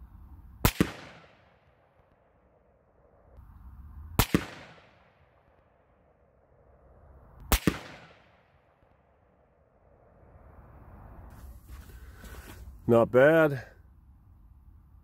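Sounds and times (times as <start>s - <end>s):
rifle shots: 0.6s - 1.8s, 4.2s - 5.4s, 7.5s - 8.8s.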